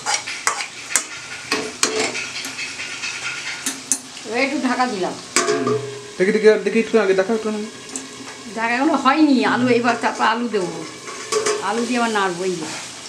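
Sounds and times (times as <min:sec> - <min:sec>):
metal spoon scraping pan: 0:00.0 - 0:04.0, 0:05.4 - 0:06.2, 0:09.6 - 0:12.9
curry sizzling in pan: 0:00.0 - 0:13.0.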